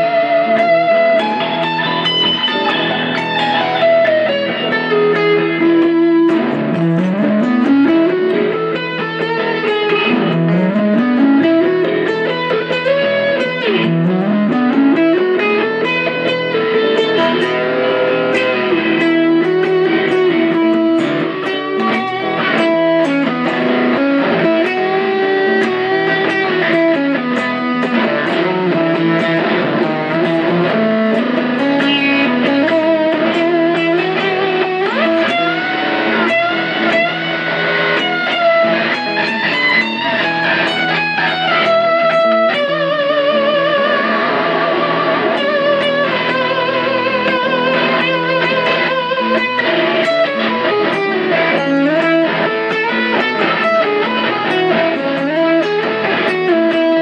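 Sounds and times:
electric guitar improvising: 0.0 - 57.0.

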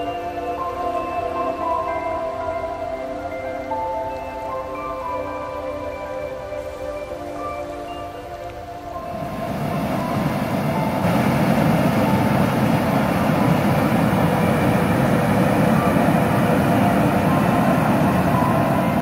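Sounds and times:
water rushing over spillway: 9.0 - 19.0.

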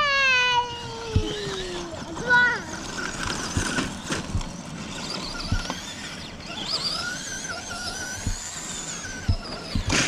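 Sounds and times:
electric motor whining: 0.0 - 10.0.

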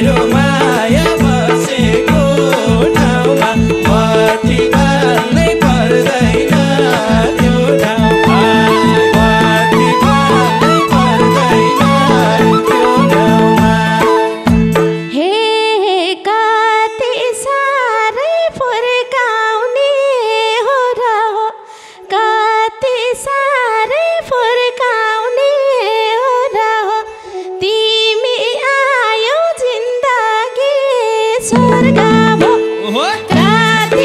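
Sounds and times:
harmonium held notes: 0.0 - 18.1, 24.6 - 34.0
woman singing folk song: 0.0 - 34.0.

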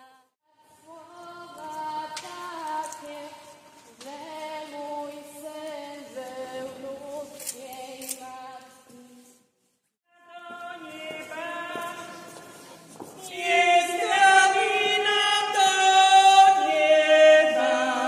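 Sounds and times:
choir singing a hymn a cappella: 10.3 - 18.0.

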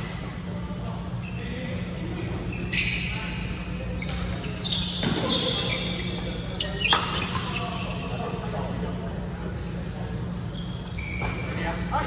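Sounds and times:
steady low hum: 0.0 - 12.0
shoes squeaking on court: 1.0 - 8.5, 10.2 - 12.0.

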